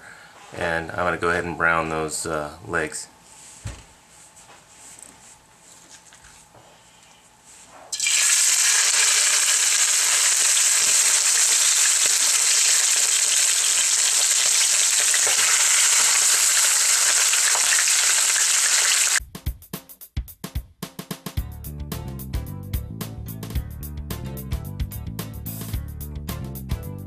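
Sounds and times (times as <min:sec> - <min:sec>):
meat sizzling in hot oil: 0:07.9 - 0:19.2.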